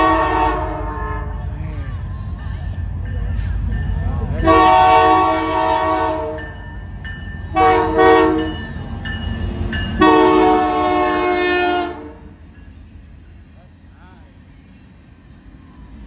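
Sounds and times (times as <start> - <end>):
train air horn blasts: 0.0 - 1.4, 4.4 - 6.6, 7.5 - 8.6, 10.0 - 12.4
train rumbling past: 0.0 - 16.0.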